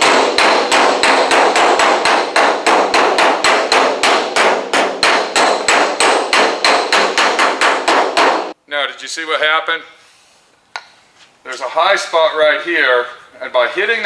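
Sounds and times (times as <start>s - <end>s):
hammer striking steel panel: 0.0s - 8.6s.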